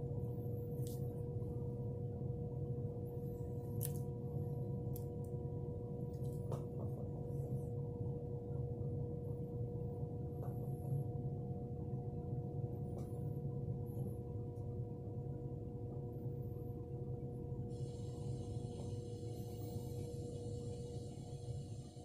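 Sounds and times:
low hum: 0:00.0 - 0:22.0.

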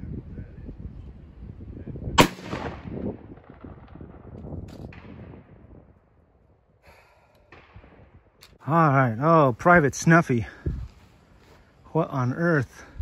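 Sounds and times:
musket shot echoing: 0:02.2 - 0:04.1.

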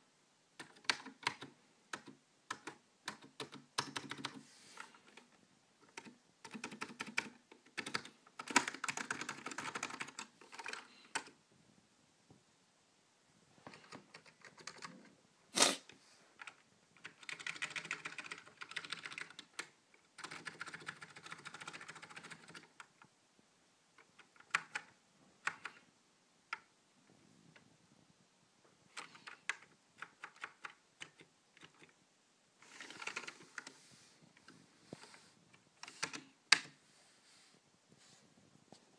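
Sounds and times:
typing on mechanical keyboard: 0:00.6 - 0:11.4, 0:13.7 - 0:15.0, 0:16.4 - 0:23.1, 0:24.0 - 0:25.9, 0:28.9 - 0:32.0, 0:32.6 - 0:33.8, 0:35.8 - 0:36.7.

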